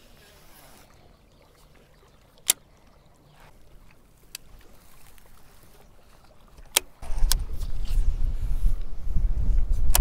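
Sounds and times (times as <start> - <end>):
lapping water: 0.0 - 7.1
faint wind: 0.0 - 10.0.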